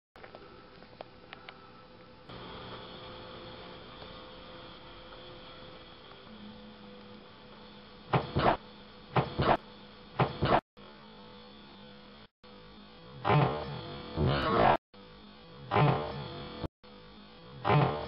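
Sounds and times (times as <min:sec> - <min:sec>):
electrical hum: 0:00.2 - 0:18.0.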